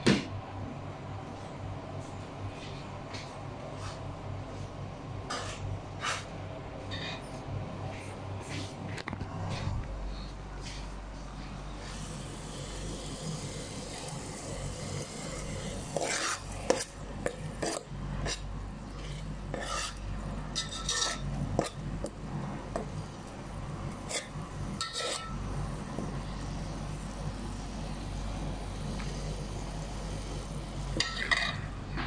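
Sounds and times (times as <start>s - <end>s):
metal spoon scraping a pot: 15.8s - 22.1s, 24.0s - 25.4s.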